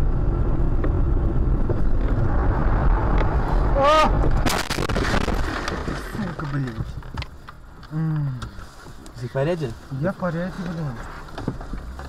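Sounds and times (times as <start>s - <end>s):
car road and engine rumble: 0.0s - 12.0s
car crashing into snow: 4.2s - 6.7s.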